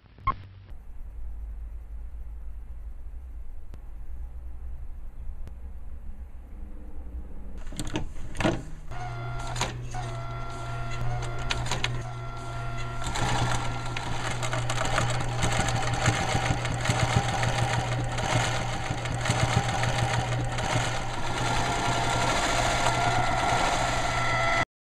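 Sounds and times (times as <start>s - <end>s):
sewing machine running: 7.6s - 24.6s.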